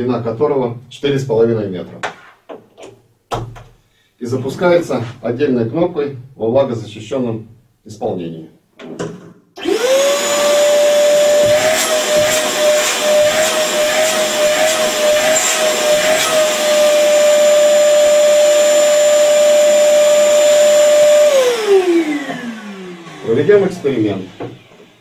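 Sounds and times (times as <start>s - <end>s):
shop vacuum motor whine: 9.6s - 25.0s.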